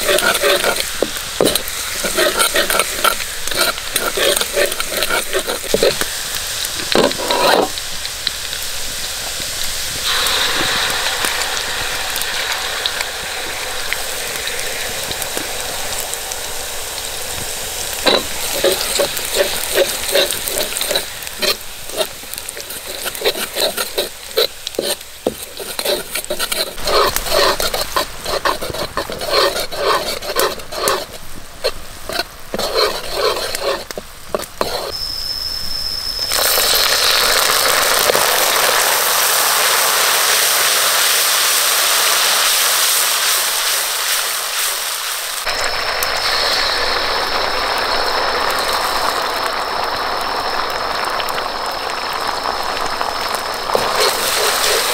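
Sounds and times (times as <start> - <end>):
metal ladle scraping wok: 0.0 - 7.8, 10.0 - 15.6, 18.0 - 35.0, 53.7 - 54.9
garlic sizzling in hot oil: 0.0 - 54.9
thin high whine: 10.0 - 16.8, 17.9 - 37.5, 45.5 - 54.9.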